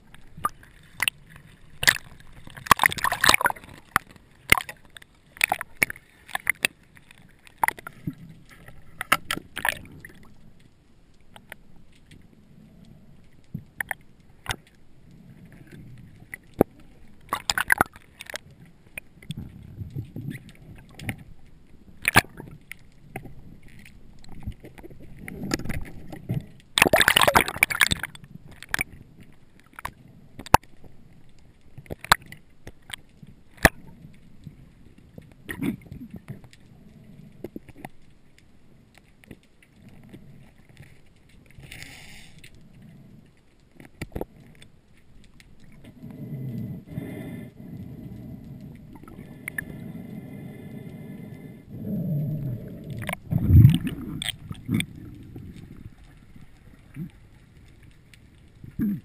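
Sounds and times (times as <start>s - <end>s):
underwater rumble of moving water: 0.0s - 59.0s
underwater clicks and knocks: 0.1s - 10.7s, 15.6s - 31.0s, 31.7s - 36.6s, 43.8s - 46.0s, 52.8s - 57.2s.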